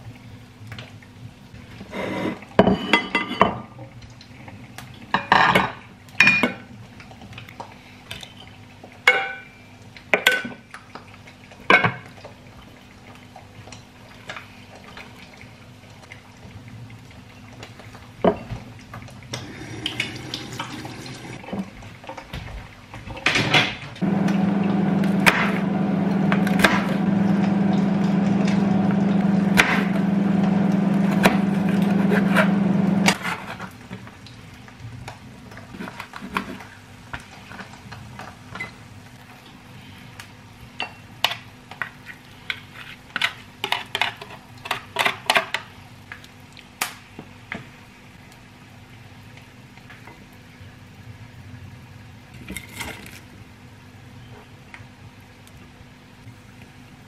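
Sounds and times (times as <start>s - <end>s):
electric appliance hum: 19.3s - 21.4s, 24.0s - 33.2s.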